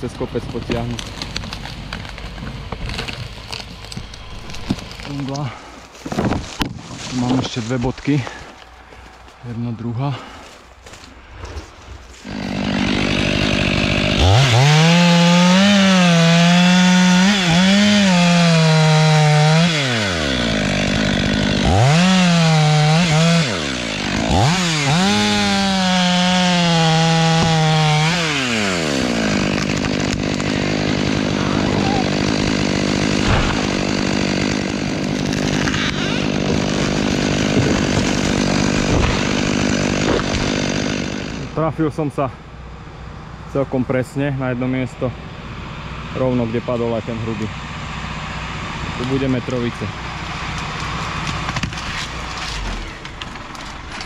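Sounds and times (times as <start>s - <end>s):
chainsaw revving and cutting wood: 12.1s - 42.0s, 45.4s - 54.0s.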